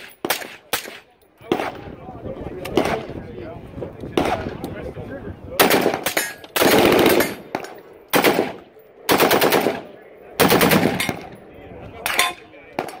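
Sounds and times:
rifle automatic bursts: 6.6 - 7.4, 8.1 - 11.2.

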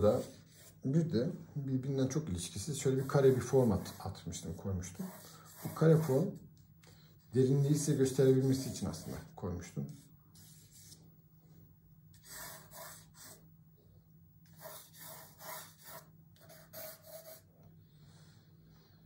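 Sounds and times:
pencil scratching on paper: 0.0 - 0.8, 2.8 - 6.3, 7.8 - 9.3, 12.2 - 13.4, 14.5 - 17.5.

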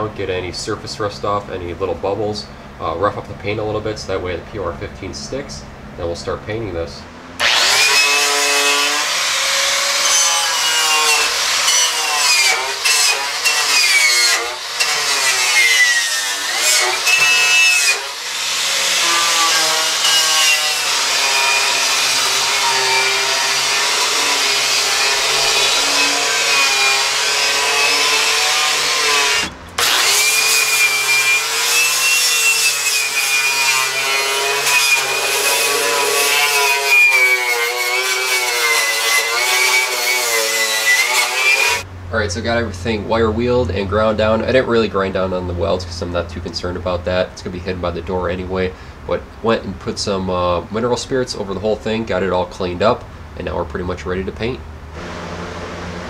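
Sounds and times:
wire wheel grinder scrubbing steel: 7.4 - 41.9.

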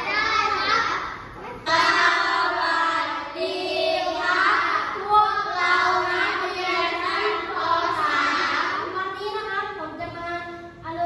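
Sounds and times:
children singing in unison: 1.6 - 8.8.

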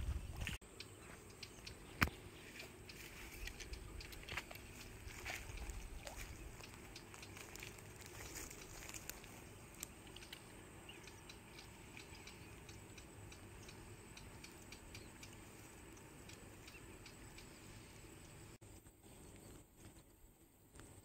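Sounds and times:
faint low background hum: 0.0 - 21.0
light clicks and crackles: 1.3 - 10.6.

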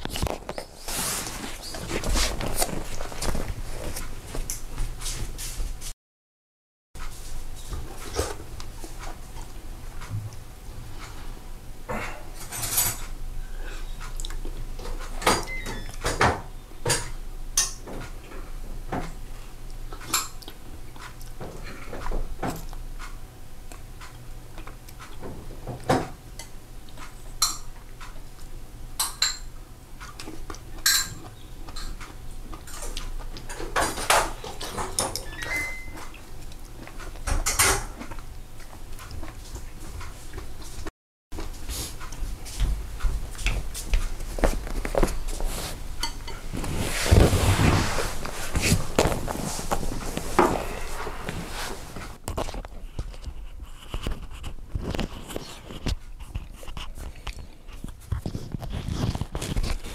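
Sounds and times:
utensils clinking against bowls: 12.4 - 13.1, 29.0 - 29.5, 30.8 - 32.0.

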